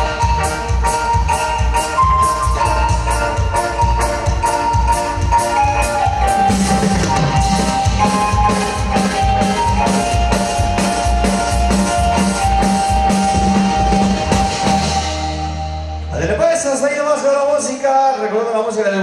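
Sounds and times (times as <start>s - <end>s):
keyboard melody: 0.0s - 18.4s
live band playing dance music: 0.0s - 19.0s.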